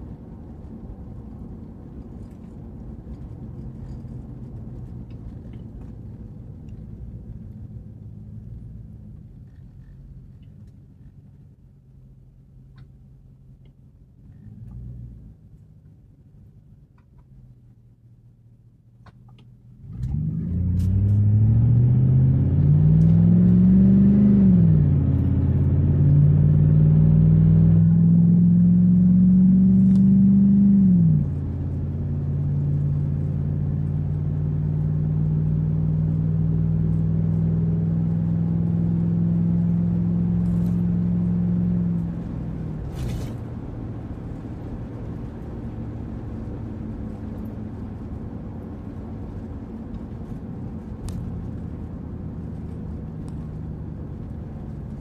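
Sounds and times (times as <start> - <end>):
car engine accelerating: 19.7 - 55.0.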